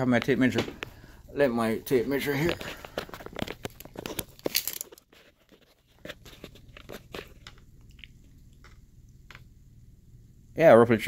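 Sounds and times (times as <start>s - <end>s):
rustling: 0.2s - 8.7s.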